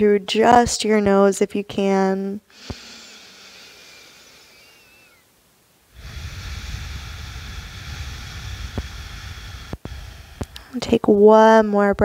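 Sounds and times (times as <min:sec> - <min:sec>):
person breathing through the nose: 0:02.5 - 0:05.2, 0:05.9 - 0:10.7.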